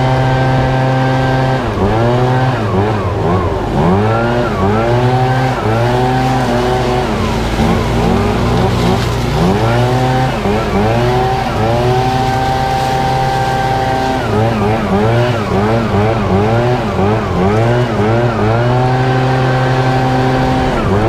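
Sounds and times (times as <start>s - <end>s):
leaf blower engine revving: 0.0s - 21.0s.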